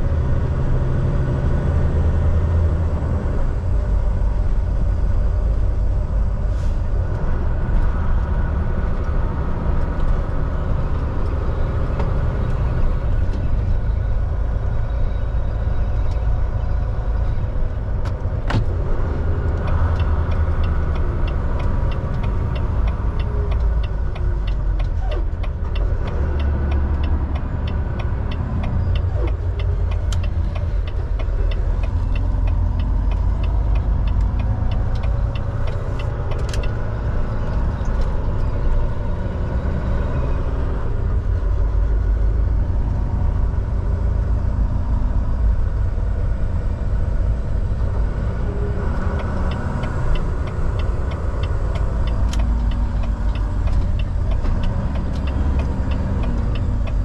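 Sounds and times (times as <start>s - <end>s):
truck engine and road rumble: 0.0s - 57.0s
fast light ticks: 48.9s - 57.0s.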